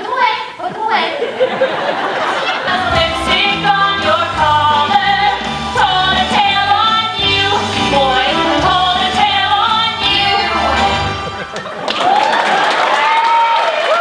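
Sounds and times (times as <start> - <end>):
women singing: 2.5 - 11.1
instrumental pop backing: 2.6 - 11.8.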